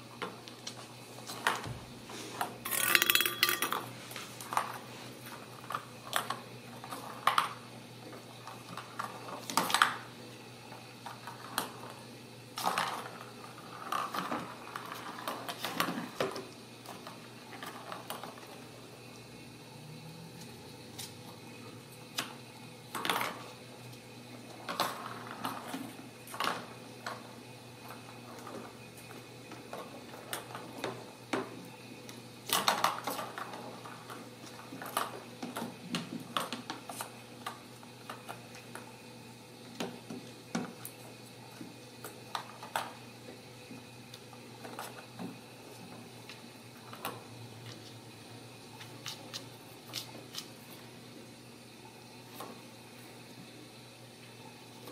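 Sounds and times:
plastic ball clinking on glass bowl: 0:02.6 - 0:03.9.

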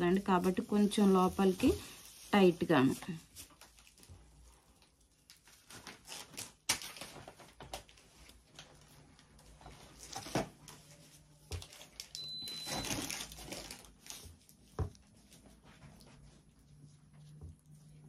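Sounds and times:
cloth rustling and rubbing: 0:00.0 - 0:06.4, 0:12.4 - 0:18.0.

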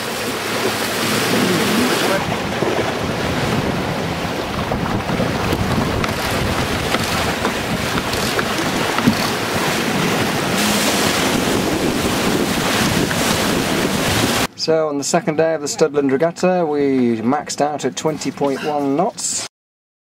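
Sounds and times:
water rushing along hulls: 0:00.0 - 0:19.5
wind buffeting microphone: 0:00.9 - 0:14.5.

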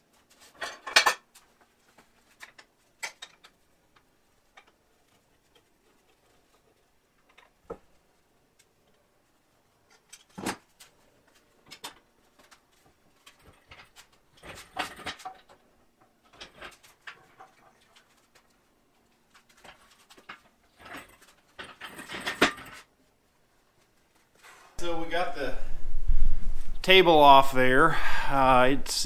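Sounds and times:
metal clatter: 0:19.4 - 0:22.9.

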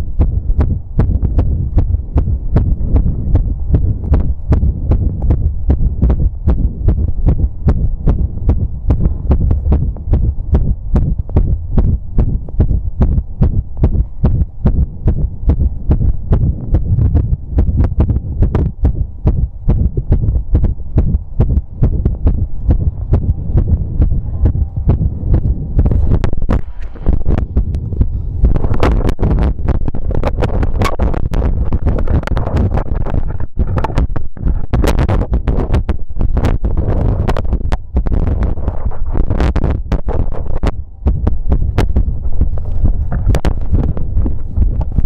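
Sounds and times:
heartbeat through stethoscope: 0:00.0 - 0:45.0
steady low rumble: 0:00.0 - 0:45.0.

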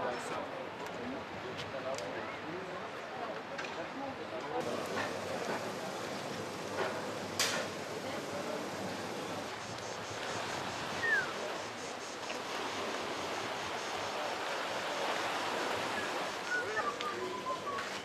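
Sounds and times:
wind: 0:00.0 - 0:18.0
sea on rocky shore: 0:04.6 - 0:18.0.

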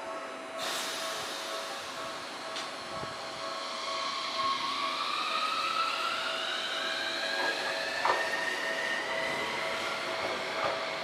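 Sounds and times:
tram clacks: 0:00.6 - 0:03.6, 0:07.3 - 0:11.0.

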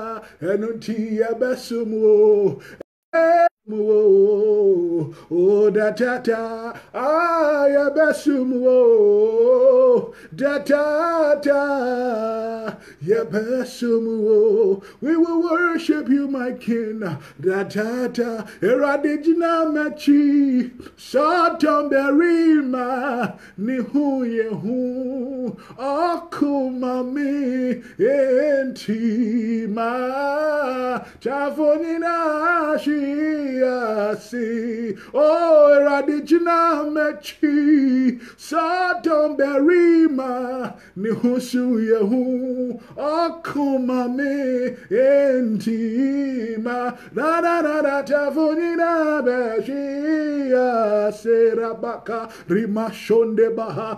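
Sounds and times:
person singing unaccompanied: 0:00.0 - 0:53.9
singer breathing: 0:00.2 - 0:00.4, 0:02.6 - 0:02.8, 0:05.1 - 0:05.3, 0:06.7 - 0:07.0, 0:10.1 - 0:10.4, 0:12.7 - 0:13.0, 0:14.8 - 0:15.0, 0:17.2 - 0:17.4, 0:18.4 - 0:18.6, 0:20.7 - 0:21.0, 0:23.3 - 0:23.6, 0:25.5 - 0:25.8, 0:27.8 - 0:28.0, 0:31.0 - 0:31.2, 0:34.9 - 0:35.2, 0:38.1 - 0:38.4, 0:40.7 - 0:41.0, 0:42.8 - 0:43.0, 0:44.7 - 0:44.9, 0:46.9 - 0:47.2, 0:52.2 - 0:52.5.

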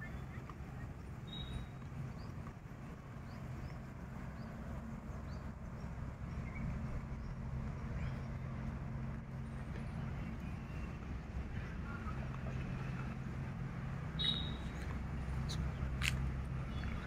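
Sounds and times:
small birds chirping: 0:00.0 - 0:08.8, 0:14.2 - 0:17.0
steady low hum: 0:00.0 - 0:17.0.

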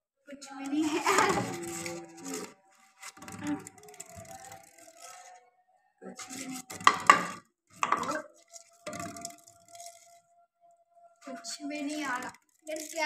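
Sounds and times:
plastic bottle spinning on table: 0:00.7 - 0:05.3, 0:06.2 - 0:10.2.

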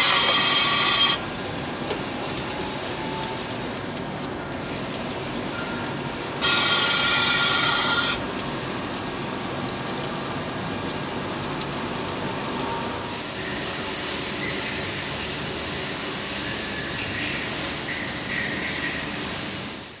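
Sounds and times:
shrill cutting tool squeal: 0:00.0 - 0:01.2, 0:06.4 - 0:09.2
coolant hissing: 0:00.0 - 0:20.0.

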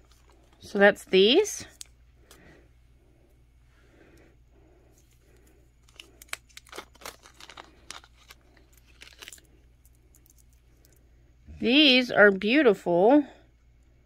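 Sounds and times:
plastic bag crinkling: 0:05.0 - 0:11.0.

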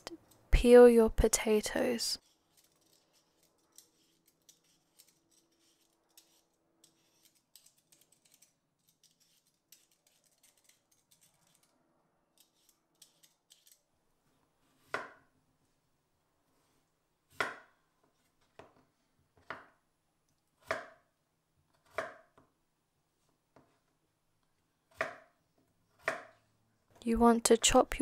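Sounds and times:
peeler scraping potato skin: 0:02.2 - 0:11.7, 0:12.3 - 0:13.9.

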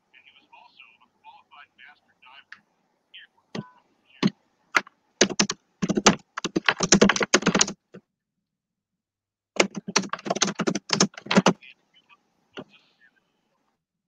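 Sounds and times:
typing on computer keyboard: 0:04.8 - 0:08.0, 0:09.6 - 0:11.6.

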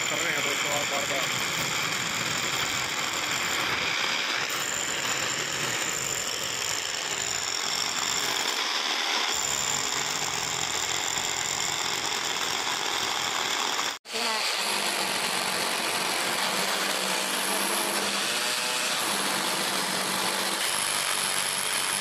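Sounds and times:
hammer drill boring into masonry: 0:00.0 - 0:22.0.

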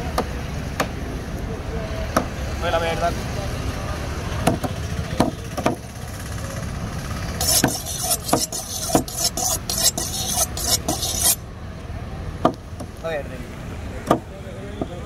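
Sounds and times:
low rumble of traffic: 0:00.0 - 0:15.0
knife chopping on wooden block: 0:07.4 - 0:11.4.

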